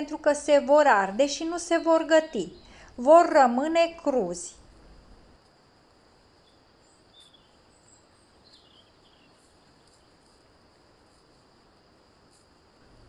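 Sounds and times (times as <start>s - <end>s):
faint high chirps and ticks: 0.0s - 13.0s
faint high hiss: 0.0s - 13.0s.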